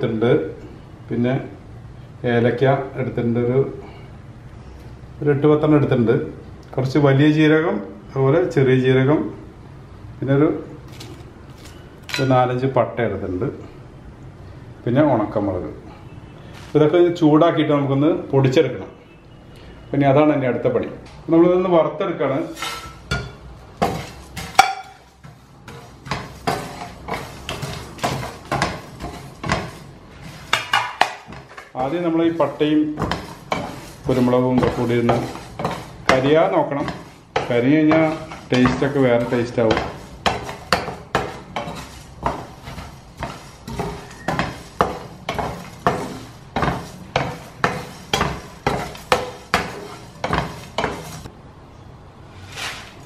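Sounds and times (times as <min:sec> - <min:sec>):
wooden spatula scraping a pan: 0:22.3 - 0:51.3, 0:52.4 - 0:53.0.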